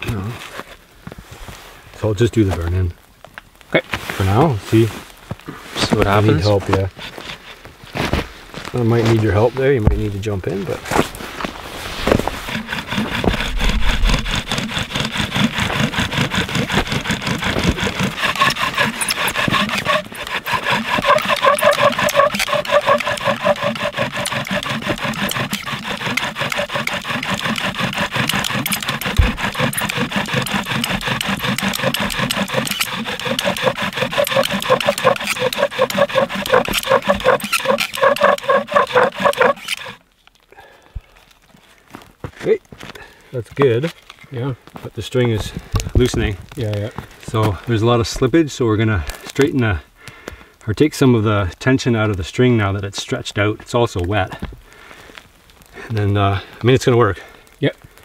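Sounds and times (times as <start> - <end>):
bow drill squeaking and grinding: 12.0 - 40.0.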